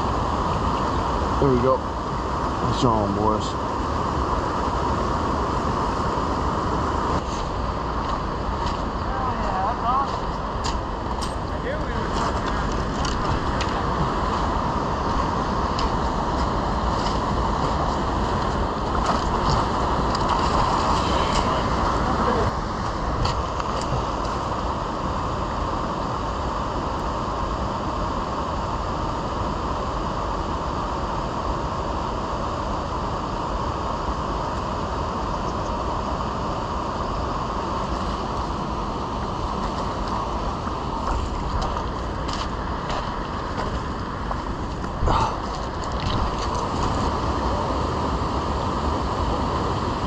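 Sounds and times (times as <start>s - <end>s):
river water rushing over gravel: 0.0s - 27.0s, 36.2s - 50.0s
stones clicking underfoot: 41.0s - 47.0s.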